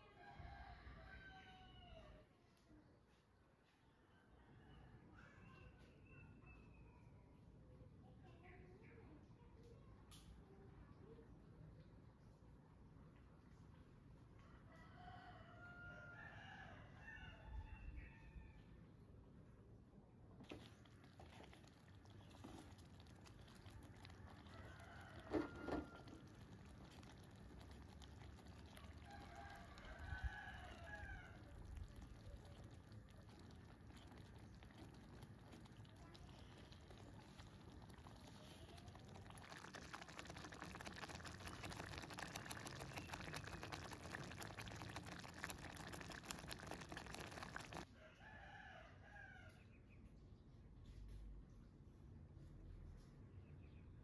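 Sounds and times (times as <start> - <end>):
rooster crowing faintly: 0.0 - 2.4, 14.4 - 18.9, 21.6 - 49.8.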